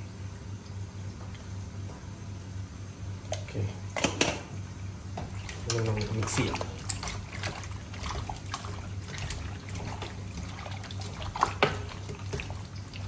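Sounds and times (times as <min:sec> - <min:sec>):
hand kneading wet meat: 0:05.2 - 0:13.0.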